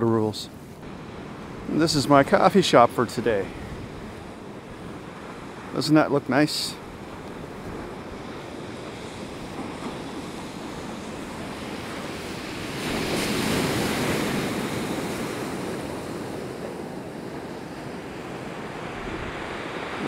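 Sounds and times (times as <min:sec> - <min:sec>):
big wave crashing: 0:07.4 - 0:20.0.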